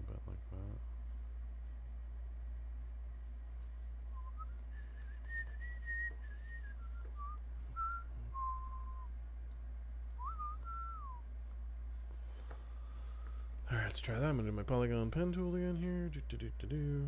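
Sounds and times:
steady low hum: 0.0 - 17.0
person whistling a tune: 4.2 - 9.1, 10.2 - 11.2.

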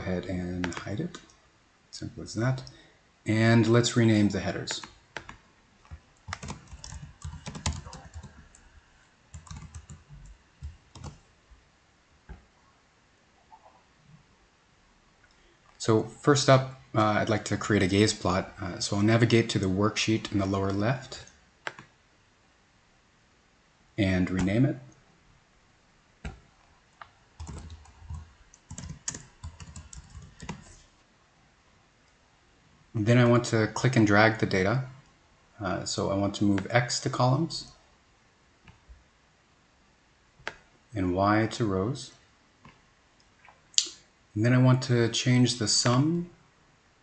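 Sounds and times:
typing on keyboard: 4.8 - 8.6, 9.3 - 11.2, 27.4 - 30.8.

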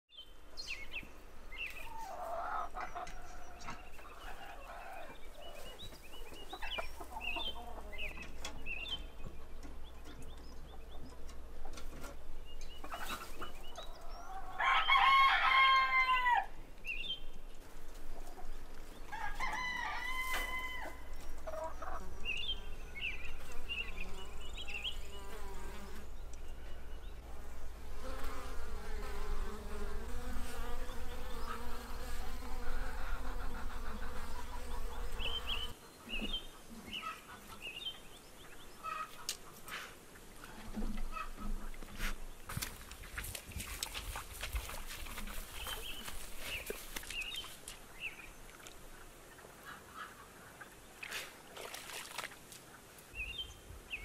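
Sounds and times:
chickens clucking: 1.7 - 16.4, 17.4 - 22.6, 31.2 - 42.2, 48.8 - 51.3
rooster crowing: 14.4 - 16.6, 19.1 - 21.1
bees buzzing: 22.0 - 26.2, 27.2 - 35.8.

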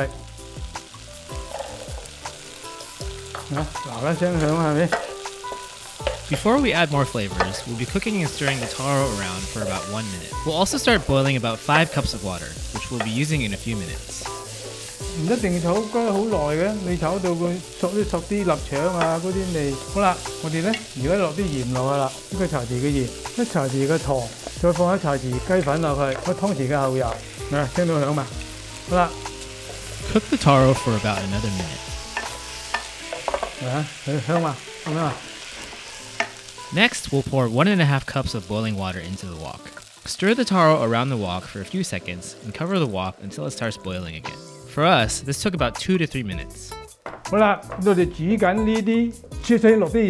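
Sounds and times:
food sizzling in a wok: 0.0 - 44.6
person speaking: 6.2 - 14.4, 15.0 - 29.2, 30.0 - 31.9.

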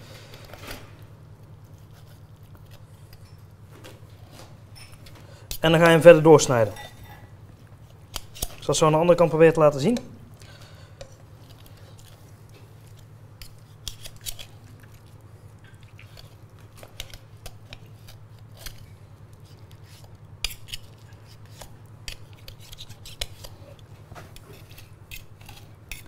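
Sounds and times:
low steady hum: 0.0 - 26.0
knife and tongs clicking: 13.4 - 14.5.

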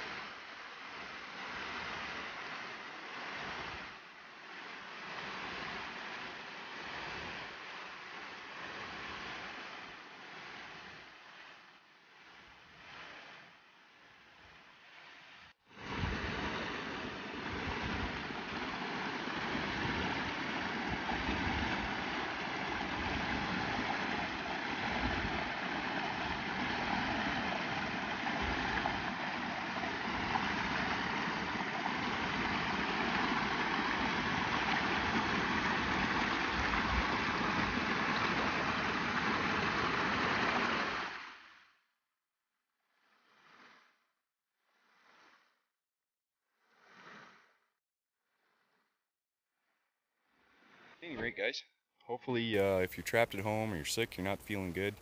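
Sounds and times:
rushing mountain stream: 15.8 - 41.4, 52.6 - 55.0.

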